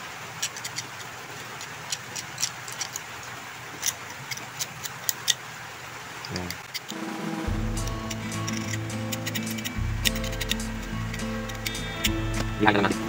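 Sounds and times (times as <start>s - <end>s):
small tool scraping metal contact: 8.0s - 11.8s.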